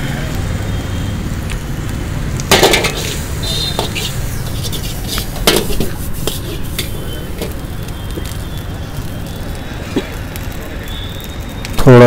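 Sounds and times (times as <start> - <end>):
metal spatula clanking on wok: 2.5 - 7.6.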